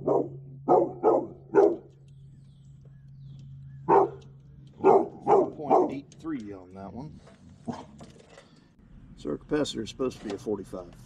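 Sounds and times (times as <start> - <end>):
dog barking: 0.0 - 1.9, 3.8 - 6.0, 7.6 - 8.0
steady low hum: 0.0 - 11.0.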